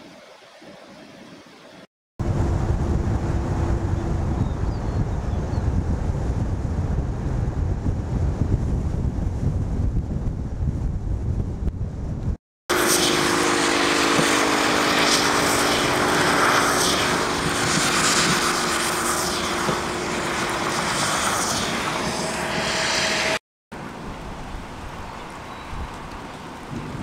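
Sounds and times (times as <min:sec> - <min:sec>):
low engine hum: 0:02.2 - 0:24.4
tyres hissing on wet road: 0:12.7 - 0:25.1.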